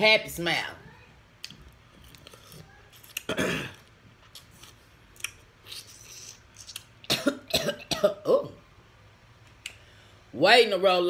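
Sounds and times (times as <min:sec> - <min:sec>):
person clearing throat: 0:03.3 - 0:03.8, 0:07.1 - 0:08.6.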